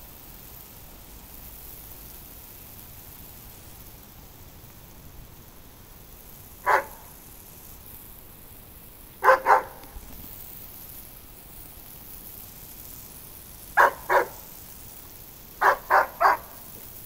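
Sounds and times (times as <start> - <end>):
garden hose spraying: 0.0 - 17.0
dog barking: 6.6 - 7.1, 9.2 - 9.8, 13.8 - 14.5, 15.6 - 16.7.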